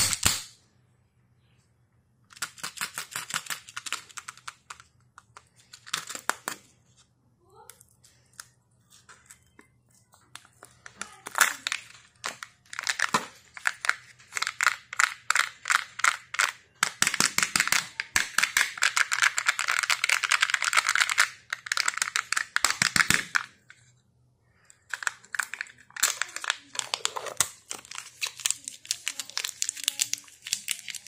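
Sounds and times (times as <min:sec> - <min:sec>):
foil wrapper crinkling and tearing: 0:10.4 - 0:15.8, 0:24.9 - 0:31.0.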